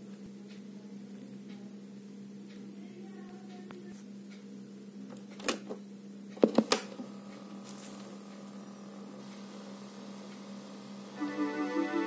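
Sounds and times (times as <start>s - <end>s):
tape running hum: 5.1s - 12.0s.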